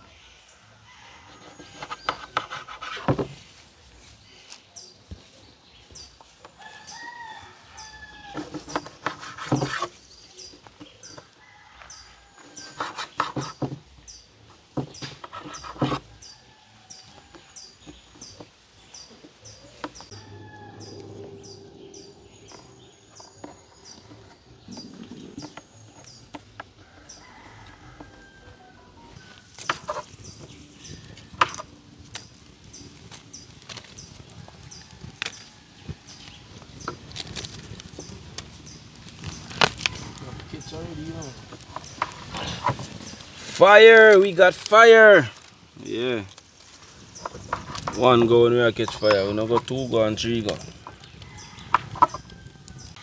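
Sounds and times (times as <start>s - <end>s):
chickens calling: 0.0s - 53.0s
small bird chirping: 14.9s - 27.3s.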